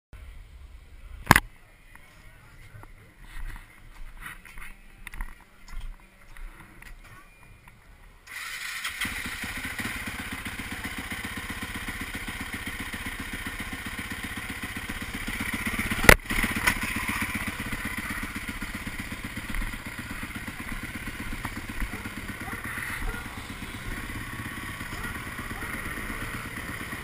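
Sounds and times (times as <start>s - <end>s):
motorcycle engine starting and idling: 6.7s - 27.0s.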